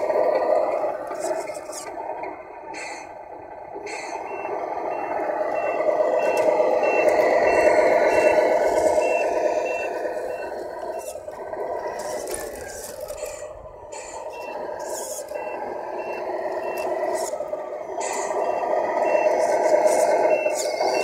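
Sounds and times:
simulated diesel engine sound: 0:00.0 - 0:21.0
reversing warning beeper: 0:03.0 - 0:12.3, 0:13.1 - 0:21.0.

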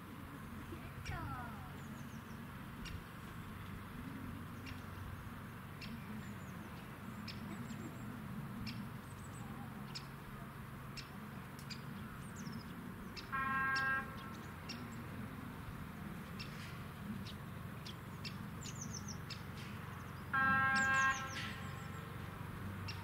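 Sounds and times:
birds chirping: 0:00.0 - 0:23.0
short horn blast: 0:20.4 - 0:21.9.

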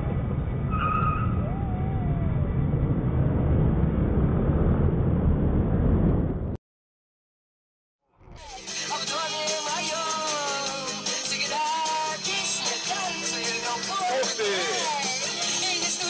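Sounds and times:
street traffic rumble: 0:00.0 - 0:06.6.

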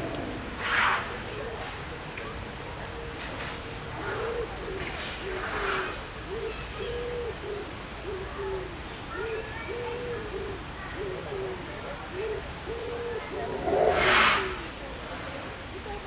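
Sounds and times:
pigeon cooing: 0:04.2 - 0:14.7
short rush of noise: 0:13.5 - 0:14.7.

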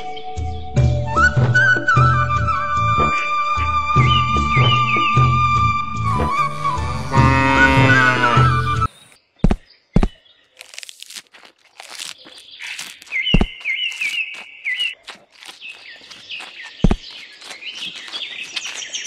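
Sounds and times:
small birds chirping: 0:06.1 - 0:19.0
cattle chewing leaves: 0:10.5 - 0:19.0.

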